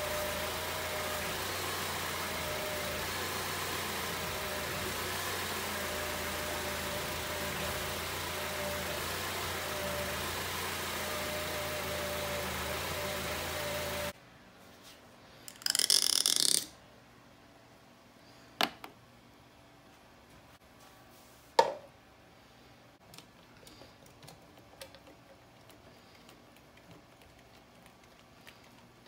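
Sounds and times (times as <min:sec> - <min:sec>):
car engine idling: 0:00.0 - 0:14.2.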